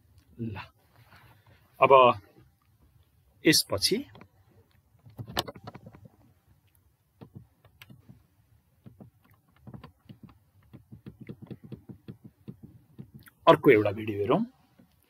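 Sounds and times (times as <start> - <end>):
faint clicks and taps: 4.0 - 13.4.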